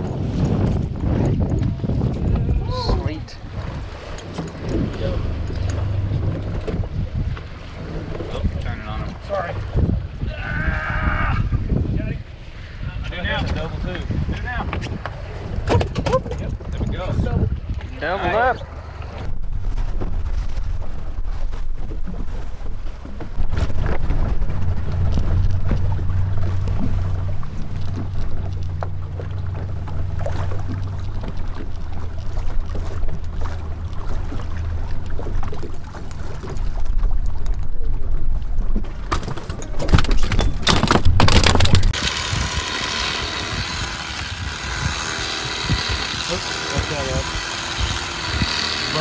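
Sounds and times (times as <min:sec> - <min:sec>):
knocks and rattles on boat: 0:00.0 - 0:10.2, 0:13.2 - 0:18.0, 0:18.9 - 0:49.0
wind buffeting microphone: 0:00.0 - 0:49.0
electric fillet knife humming: 0:42.0 - 0:49.0.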